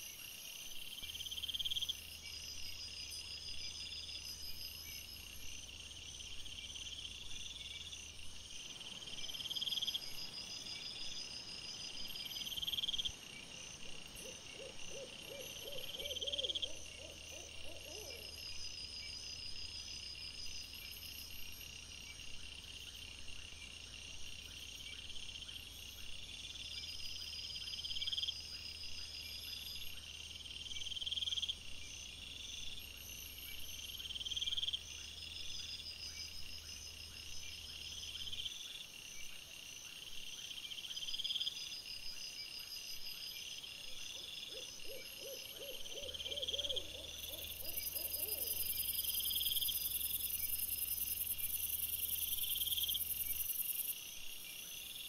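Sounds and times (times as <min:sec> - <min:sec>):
crickets chirping: 0:00.0 - 0:55.0
faint fast insect ticking: 0:00.0 - 0:55.0
low pulsing insect call: 0:00.0 - 0:55.0.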